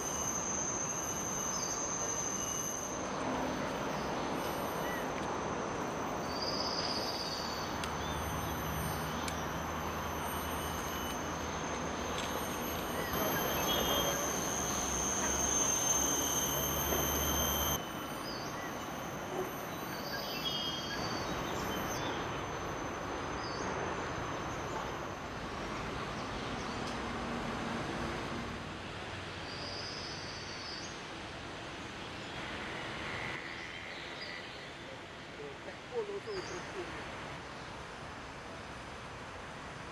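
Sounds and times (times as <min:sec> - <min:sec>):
high-pitched drone: 0:00.0 - 0:23.2
bird-like chirps: 0:12.8 - 0:17.4.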